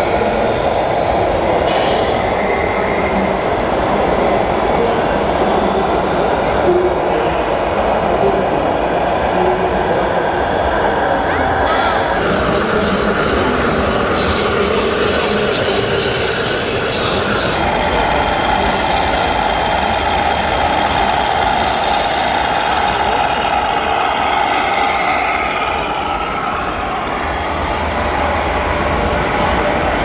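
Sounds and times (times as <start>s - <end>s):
model train whirring: 11.7s - 30.0s
diesel truck engine sound: 11.8s - 30.0s.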